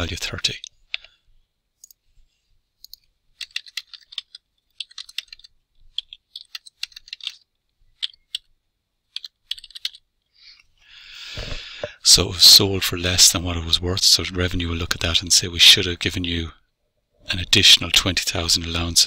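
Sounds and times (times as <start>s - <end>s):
typing on computer keyboard: 2.8s - 8.5s, 9.1s - 10.0s.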